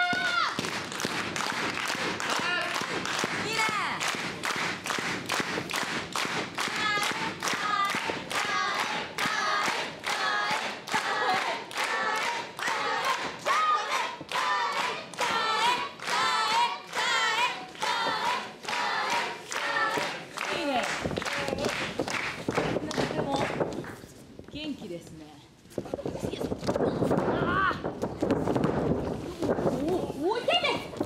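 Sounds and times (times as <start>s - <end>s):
crowd clapping in rhythm: 0.0s - 23.9s.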